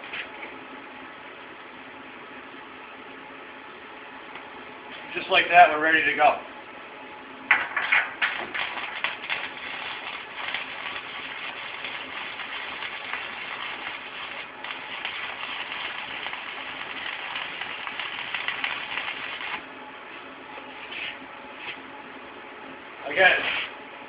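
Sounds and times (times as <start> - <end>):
welding arc crackling: 7.5 - 19.7.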